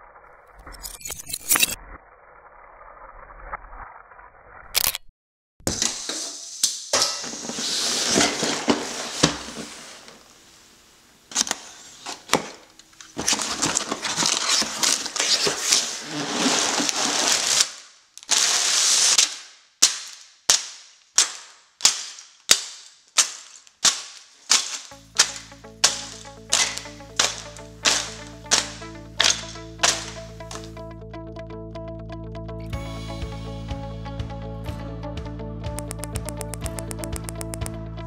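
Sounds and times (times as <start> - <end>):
plastic bags crinkling: 12.9 - 20.2, 21.1 - 30.7
cardboard box flaps tearing: 13.2 - 17.7
sharp clicks: 35.7 - 37.8
short sharp snaps: 35.7 - 37.8.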